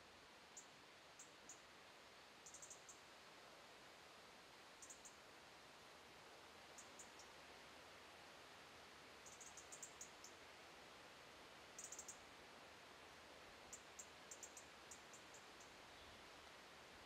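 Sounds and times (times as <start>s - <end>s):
steady hiss: 0.0s - 17.0s
faint high-pitched ticks: 0.6s - 1.7s, 2.4s - 3.0s, 4.8s - 5.2s, 6.7s - 7.4s, 9.2s - 10.4s, 11.8s - 12.2s, 13.7s - 16.1s.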